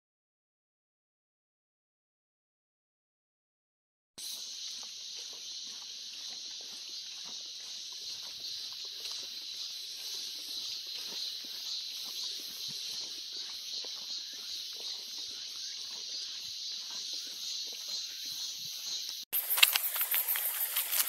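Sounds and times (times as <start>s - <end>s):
cicadas chorus: 4.2s - 21.0s
footsteps on asphalt: 4.2s - 21.0s.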